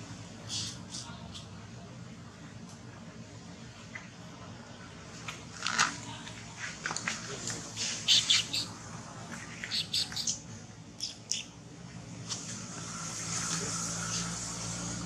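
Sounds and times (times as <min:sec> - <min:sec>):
animals chirping and squeaking: 0:07.8 - 0:10.4, 0:11.0 - 0:11.6.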